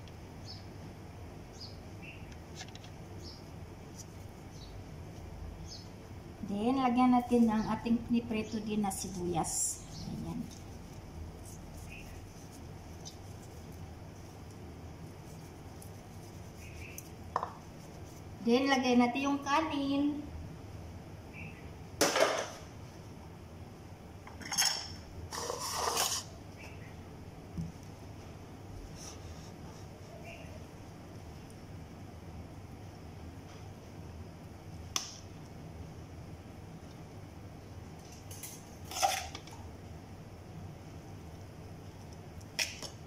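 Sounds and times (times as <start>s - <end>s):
dish scraping: 24.4s - 26.4s.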